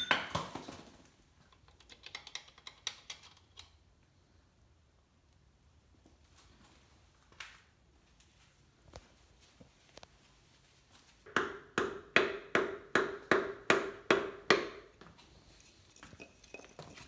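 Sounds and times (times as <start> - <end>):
hammer striking wooden block: 11.3 - 14.9.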